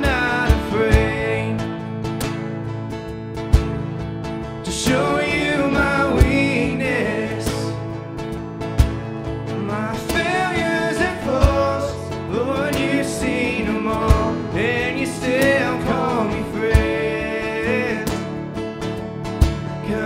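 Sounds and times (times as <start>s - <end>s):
people singing: 0.0s - 1.9s, 4.7s - 8.0s, 9.6s - 18.5s
keyboard: 0.0s - 20.0s
strummed acoustic guitars: 0.0s - 20.0s
deep cajon hits: 2.1s - 4.3s, 7.6s - 9.5s, 10.1s - 12.1s, 12.7s - 17.4s, 18.0s - 20.0s.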